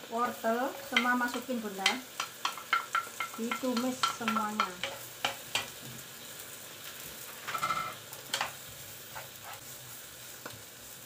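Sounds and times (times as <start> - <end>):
food sizzling in oil: 0.0 - 11.0
wooden spatula clicking on pan: 0.9 - 5.7.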